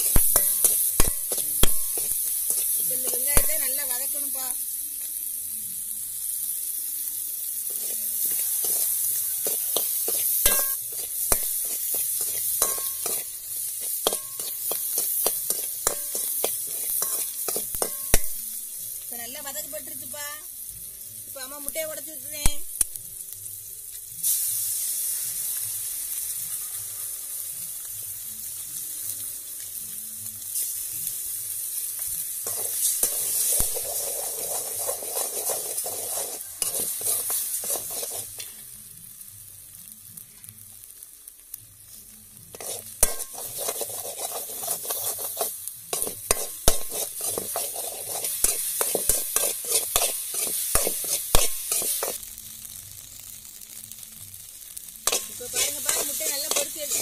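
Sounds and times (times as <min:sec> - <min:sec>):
metal spoon scraping a pan: 0:00.0 - 0:04.2, 0:07.7 - 0:18.5, 0:32.4 - 0:38.6, 0:42.5 - 0:52.2, 0:55.0 - 0:57.0
eggs sizzling in a pan: 0:00.0 - 0:57.0.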